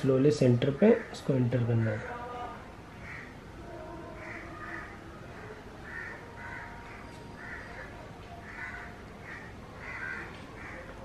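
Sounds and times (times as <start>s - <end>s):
bird harsh calls: 4.2s - 10.9s.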